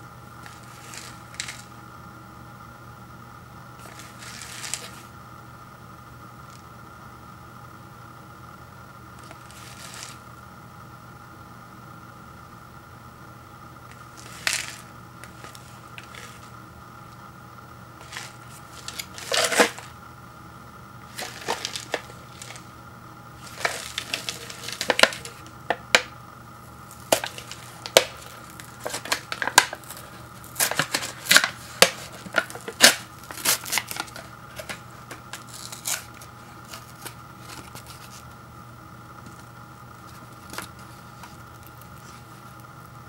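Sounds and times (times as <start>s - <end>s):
faint steady hum: 0.0s - 43.0s
paper lid crinkling and tearing: 0.4s - 1.7s, 3.8s - 5.1s, 9.2s - 10.2s, 13.9s - 16.5s, 18.0s - 20.0s, 21.0s - 22.7s, 23.4s - 26.1s, 26.9s - 38.2s.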